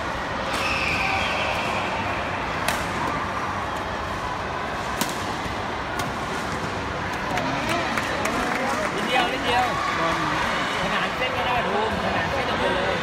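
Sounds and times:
sports hall background noise: 0.0s - 13.0s
rackets hitting shuttlecock: 2.6s - 3.2s.

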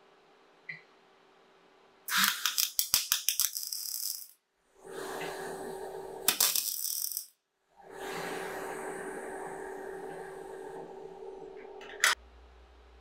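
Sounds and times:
welding arc crackling: 2.1s - 4.4s, 6.3s - 7.3s
welding arc popping: 2.1s - 4.4s.

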